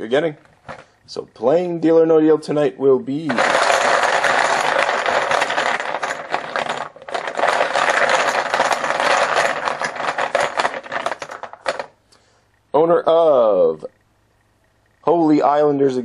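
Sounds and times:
poker chips clattering in pail: 0:03.2 - 0:11.9.

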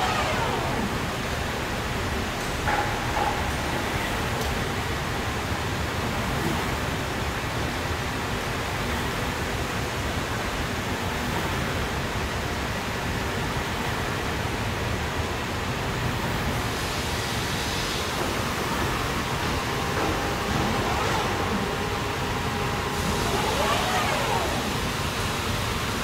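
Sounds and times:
glass cutting machine rushing: 0:00.0 - 0:02.2, 0:18.4 - 0:25.3.

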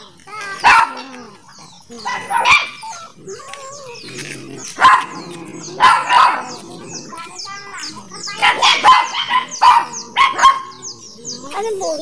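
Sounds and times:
birds chirping faintly: 0:00.0 - 0:12.0
dog barking: 0:00.4 - 0:01.2, 0:02.0 - 0:03.2, 0:04.7 - 0:10.9.

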